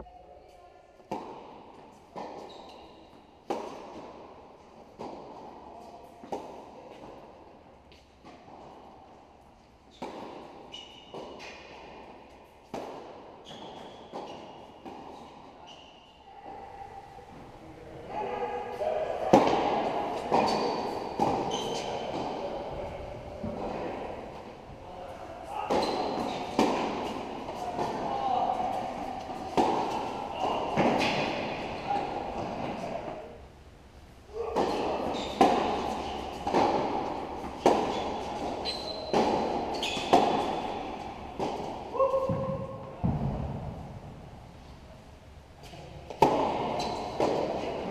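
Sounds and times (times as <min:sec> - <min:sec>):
shoe squeaks: 0:02.4 - 0:03.1, 0:10.7 - 0:11.6, 0:13.4 - 0:16.2, 0:20.4 - 0:22.1, 0:25.8 - 0:26.6, 0:34.8 - 0:36.4, 0:37.8 - 0:40.8, 0:46.7 - 0:47.2
racquets hitting tennis ball: 0:09.9 - 0:15.3, 0:19.2 - 0:22.8, 0:25.5 - 0:33.2, 0:34.4 - 0:44.2, 0:46.1 - 0:47.9
tennis ball bouncing on hard court: 0:29.0 - 0:31.6, 0:34.6 - 0:44.1.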